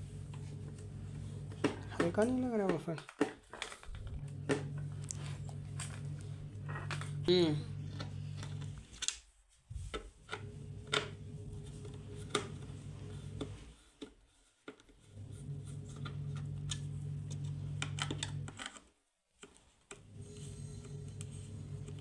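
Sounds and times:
low electrical hum: 0.0s - 3.0s, 3.8s - 13.9s, 15.1s - 18.6s.

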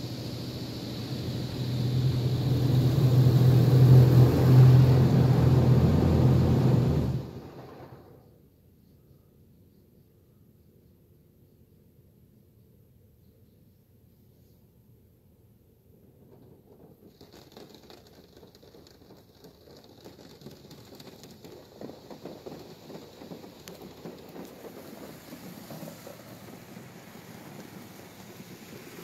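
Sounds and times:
water jets spraying on car: 0.0s - 8.1s, 19.9s - 29.0s.

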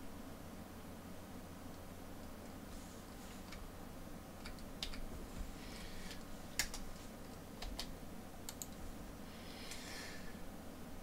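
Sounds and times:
keyboard keystroke clicks: 4.4s - 5.0s, 7.6s - 8.8s.

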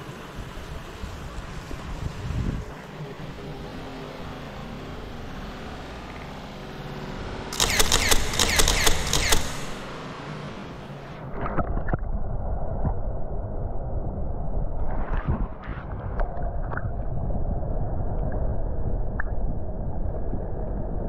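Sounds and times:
steady rushing background: 0.0s - 11.2s
camera handling noise: 7.5s - 9.8s
rapid clicks and crackles: 7.5s - 9.9s
muffled low rumble: 9.8s - 21.0s.

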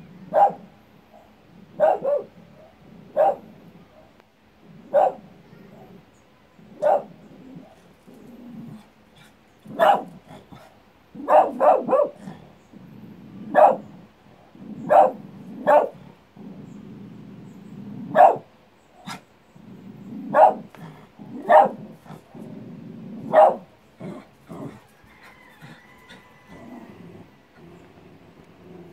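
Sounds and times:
small dog barking: 0.2s - 4.2s, 4.8s - 6.0s, 6.7s - 7.8s, 8.7s - 12.5s, 13.4s - 14.0s, 14.8s - 16.1s, 18.0s - 19.2s, 20.2s - 22.2s, 23.2s - 26.7s
bark echo: 0.3s - 4.1s, 4.9s - 5.2s, 6.8s - 7.1s, 9.7s - 10.1s, 11.2s - 12.2s, 13.6s - 13.8s, 14.9s - 16.0s, 18.2s - 18.5s, 20.3s - 20.7s, 21.4s - 21.8s, 23.3s - 23.7s
dog growling: 6.6s - 18.4s, 19.1s - 28.9s.

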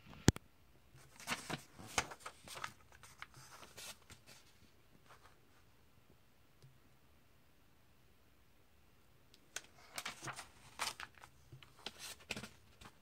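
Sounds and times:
paper page rustling: 1.0s - 5.4s, 9.5s - 13.0s.

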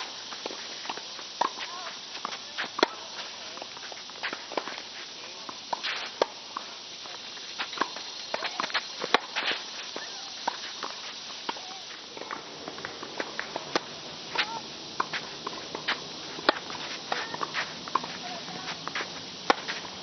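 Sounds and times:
racquets striking tennis ball: 0.4s - 4.9s, 7.4s - 20.0s
footsteps and shoe scuffs: 7.1s - 11.2s, 11.8s - 20.0s.

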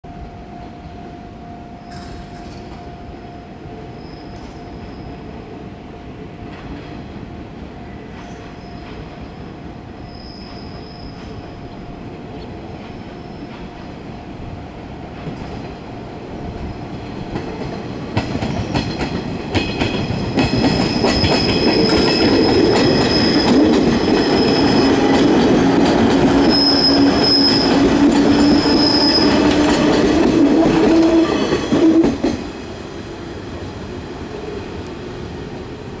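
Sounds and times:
train rumbling past: 0.1s - 36.0s
rail-joint clicks: 1.9s - 2.9s, 4.2s - 4.8s, 8.1s - 9.2s, 15.1s - 15.9s, 16.6s - 32.5s
high wheel squeal: 10.0s - 11.4s, 20.4s - 32.0s.

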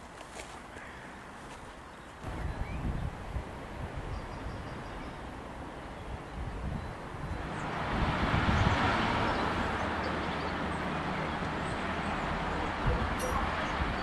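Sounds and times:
rushing traffic noise: 0.0s - 14.0s
wind rumble on microphone: 2.2s - 5.3s, 5.9s - 14.0s.

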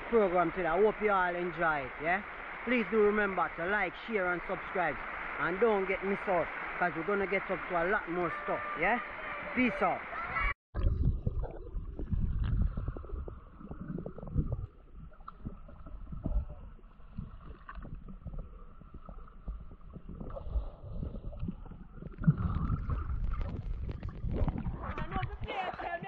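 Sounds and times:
faint steady hiss: 0.0s - 10.2s
low rumbling on microphone: 10.8s - 26.0s.

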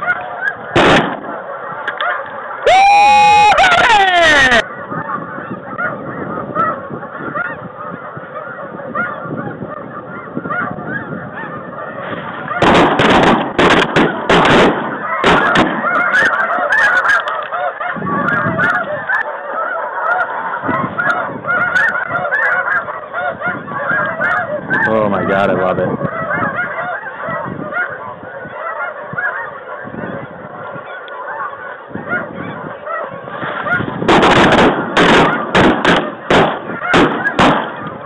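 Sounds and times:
geese honking: 0.0s - 38.0s
shotgun shots: 0.7s - 1.4s, 12.6s - 15.8s, 34.0s - 37.8s.

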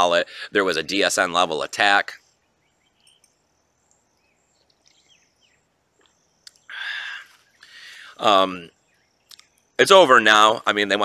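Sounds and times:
high-pitched wildlife chirps: 2.2s - 9.8s.

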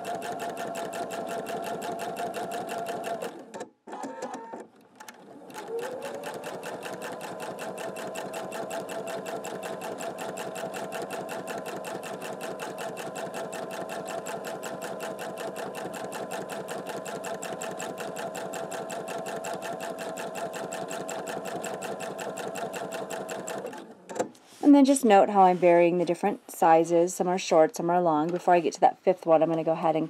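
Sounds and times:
sewing machine running: 0.0s - 3.5s, 5.2s - 23.9s.

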